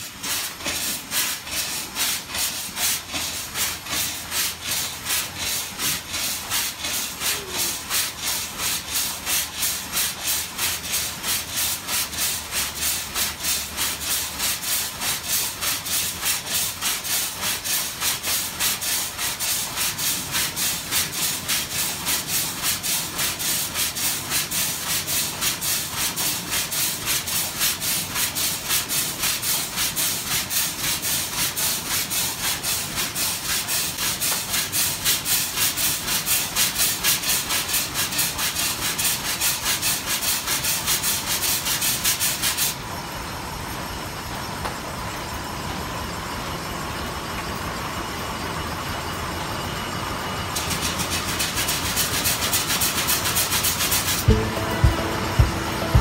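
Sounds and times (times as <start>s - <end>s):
steam engine exhaust chuffing: 0.0s - 41.7s
steam hissing: 0.0s - 42.8s, 50.3s - 56.0s.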